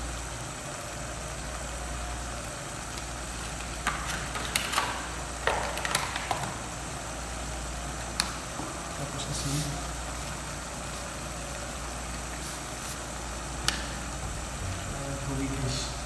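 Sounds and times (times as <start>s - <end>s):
chicken cooking in a pot: 0.0s - 16.0s
crackles and pops: 2.4s - 6.8s, 8.0s - 8.6s.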